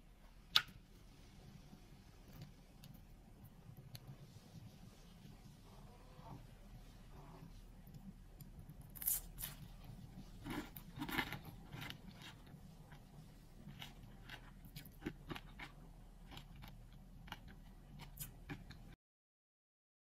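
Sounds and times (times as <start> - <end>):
pastry crackling and crunching: 7.7 - 19.0.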